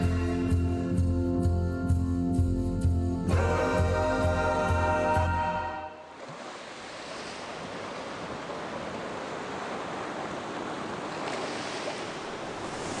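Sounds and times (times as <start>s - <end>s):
sea waves: 3.3s - 13.0s.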